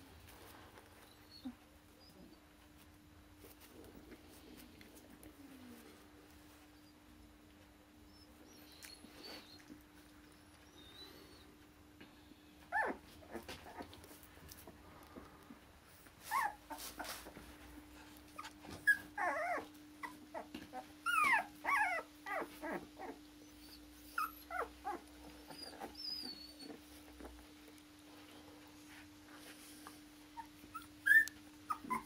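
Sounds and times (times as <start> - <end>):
faint steady hum: 0.0 - 32.0
puppies whining and yelping: 0.9 - 2.5, 8.0 - 11.6, 12.6 - 14.2, 16.1 - 17.3, 18.3 - 27.3, 30.4 - 32.0.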